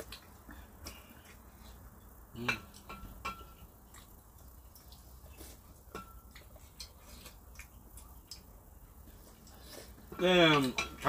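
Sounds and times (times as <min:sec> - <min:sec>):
utensils clinking against dishes: 0:02.4 - 0:03.7, 0:10.1 - 0:11.0.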